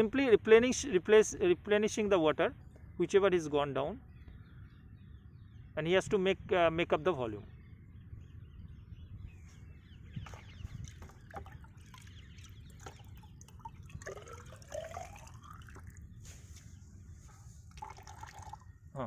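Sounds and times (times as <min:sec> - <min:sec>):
water trickling into water: 0:10.1 - 0:16.2, 0:17.6 - 0:18.8.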